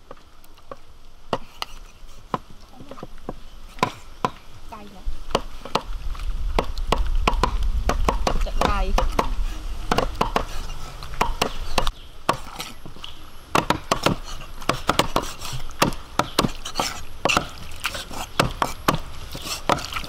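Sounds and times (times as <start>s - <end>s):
knife chopping on a board: 6.6s - 10.6s, 13.6s - 17.6s, 18.4s - 20.0s.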